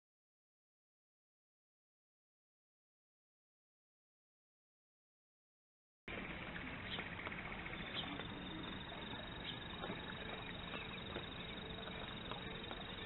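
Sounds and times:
outdoor background hiss: 0:06.1 - 0:13.0.

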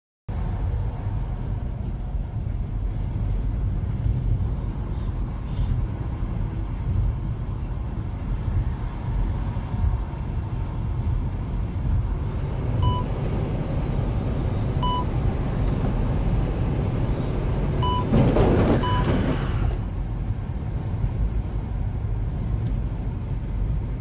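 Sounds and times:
truck cab rumble: 0:11.0 - 0:20.6
short electronic beep: 0:12.8 - 0:13.1, 0:14.8 - 0:15.1, 0:17.8 - 0:18.1, 0:18.8 - 0:19.1.

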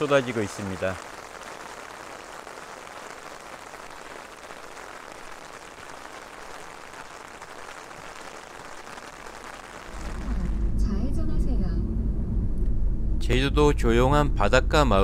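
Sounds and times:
rain pouring: 0:00.0 - 0:10.8.

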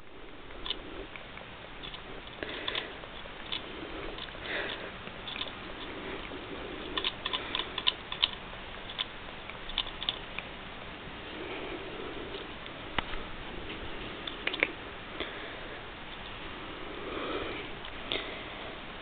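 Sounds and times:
metal ball clicking: 0:01.8 - 0:06.0, 0:06.8 - 0:10.5.

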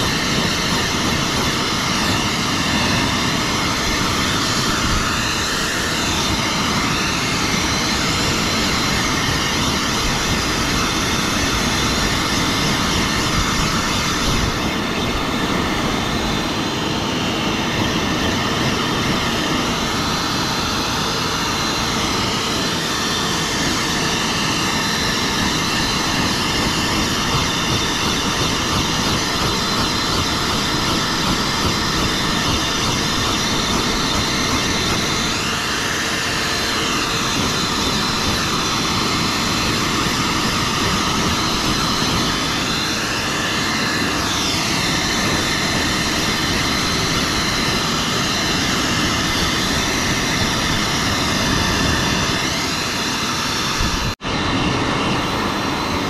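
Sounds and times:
dog grooming dryer blowing air: 0:00.0 - 0:56.0.

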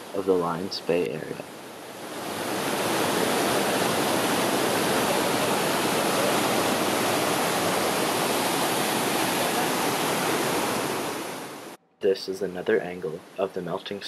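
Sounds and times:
creek rushing over boulders: 0:01.7 - 0:11.8.

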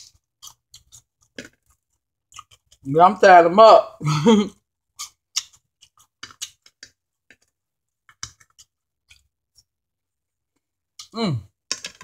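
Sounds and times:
mouth chewing and smacking: 0:00.0 - 0:02.9, 0:04.9 - 0:09.7, 0:11.0 - 0:11.2.

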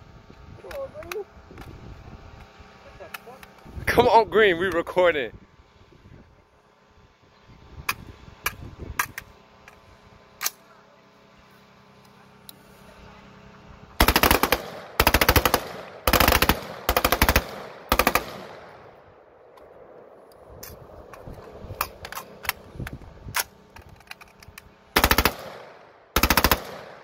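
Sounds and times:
automatic rifle fire bursts: 0:14.0 - 0:19.0, 0:25.0 - 0:27.0
metallic rifle clicks: 0:20.3 - 0:25.7.

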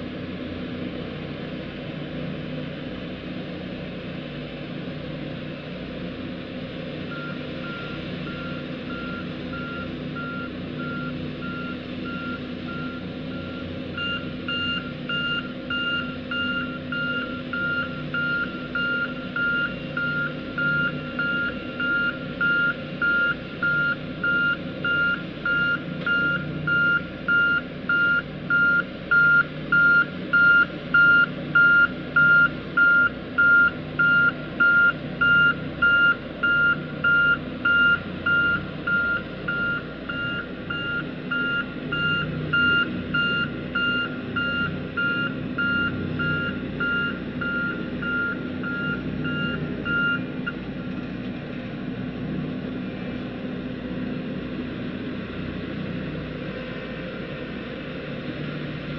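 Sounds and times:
diesel engine running: 0:00.0 - 0:58.9
reversing alarm beeping: 0:07.1 - 0:50.6.

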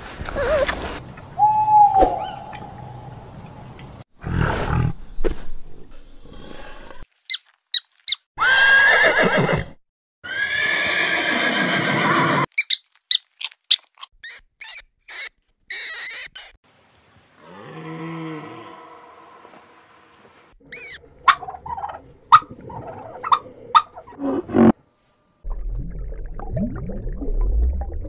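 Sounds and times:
horses whinnying: 0:08.4 - 0:12.5.

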